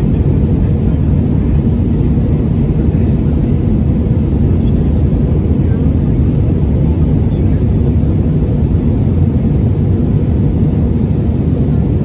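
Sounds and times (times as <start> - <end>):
airplane cabin rumble: 0.0 - 12.0.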